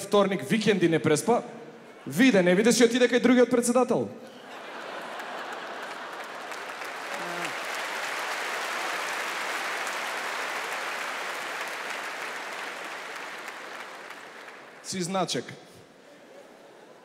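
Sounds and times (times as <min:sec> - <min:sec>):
large audience applauding: 0:04.4 - 0:15.0.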